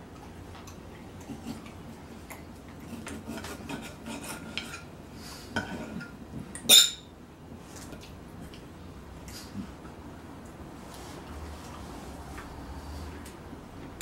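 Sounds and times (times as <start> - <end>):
cutlery scraping a plate: 2.8 - 4.9
loud ringing clink: 6.7 - 7.1.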